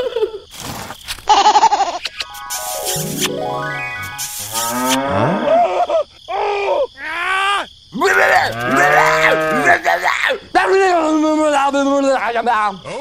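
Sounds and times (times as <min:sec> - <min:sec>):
calf mooing: 0:08.4 - 0:09.8.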